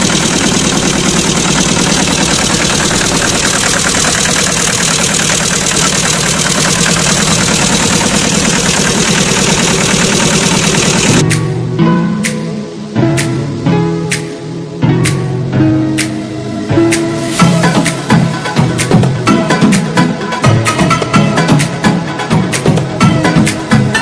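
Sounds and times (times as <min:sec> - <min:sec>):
engine rattling: 0:00.0 - 0:11.3
plucked-string music: 0:11.2 - 0:24.0.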